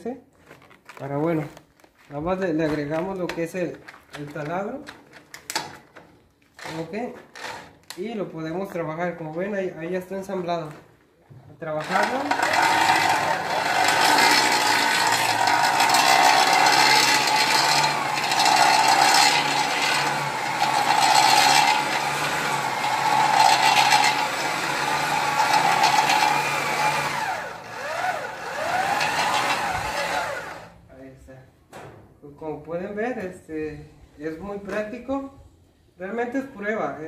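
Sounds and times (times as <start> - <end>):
hammer drill running under load: 11.8 - 30.8.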